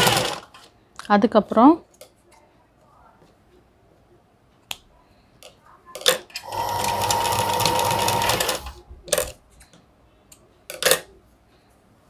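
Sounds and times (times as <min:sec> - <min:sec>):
sewing machine stitching: 0:00.0 - 0:00.5, 0:06.4 - 0:08.8.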